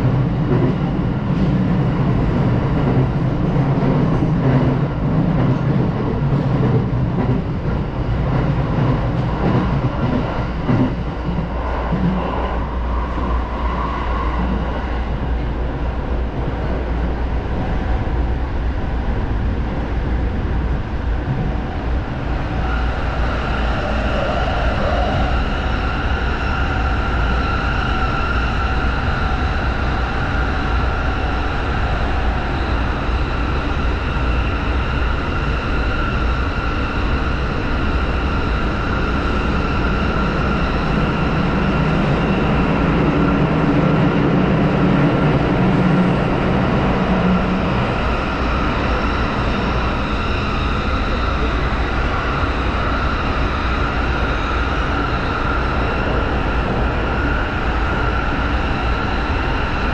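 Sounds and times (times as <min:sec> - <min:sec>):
train high whine in tunnel: 0:00.0 - 0:59.9
train wheels rumbling: 0:00.0 - 0:59.9.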